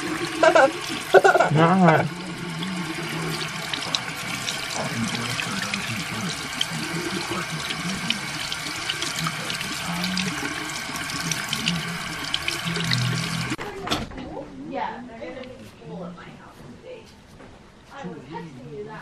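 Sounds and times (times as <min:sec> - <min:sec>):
faucet running into sink: 0:00.0 - 0:13.6.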